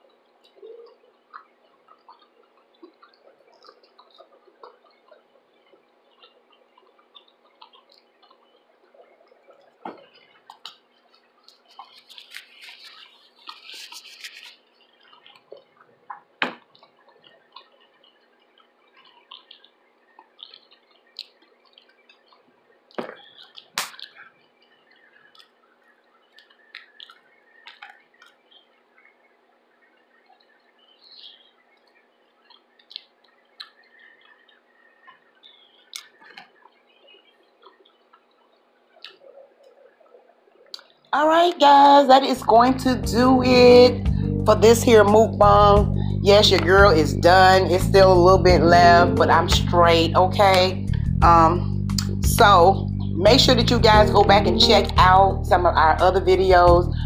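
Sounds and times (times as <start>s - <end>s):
wet chewing and lip smacks: 0.0s - 25.6s, 26.3s - 28.6s, 31.1s - 36.8s, 39.0s - 39.8s, 40.7s - 41.0s
sharp mouth clicks: 51.9s - 52.2s.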